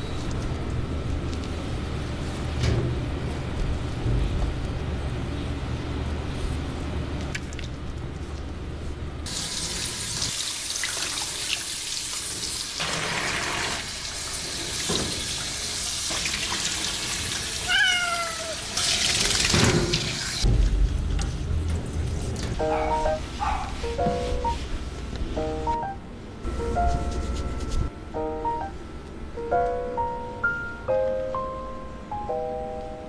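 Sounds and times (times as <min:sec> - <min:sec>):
kitten meowing: 0:17.7 - 0:18.6
low steady hum: 0:20.4 - 0:33.0.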